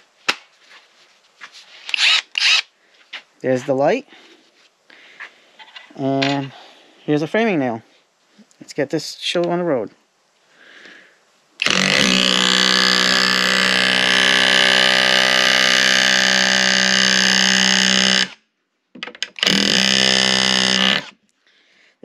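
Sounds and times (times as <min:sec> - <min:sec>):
auto hammer rapid-fire buzz: 0:11.6 - 0:18.4, 0:19.4 - 0:21.1.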